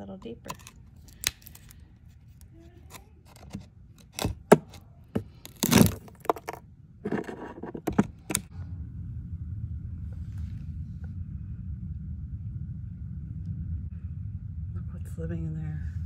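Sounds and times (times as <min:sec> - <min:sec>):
wood crunching tear: 0:00.5 - 0:01.8, 0:04.0 - 0:06.6
rotten wood cracking and scraping: 0:02.9 - 0:06.6.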